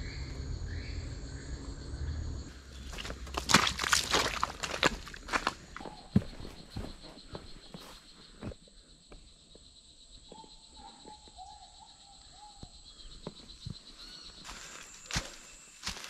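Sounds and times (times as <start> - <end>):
insects droning: 0.0 - 16.0
footsteps on dirt path: 2.6 - 8.6, 13.2 - 16.0.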